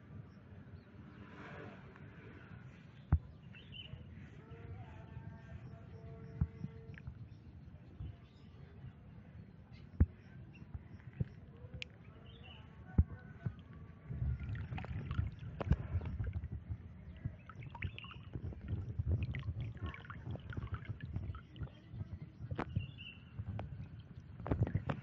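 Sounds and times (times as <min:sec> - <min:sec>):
water splashing and dripping: 0:13.4 - 0:25.0.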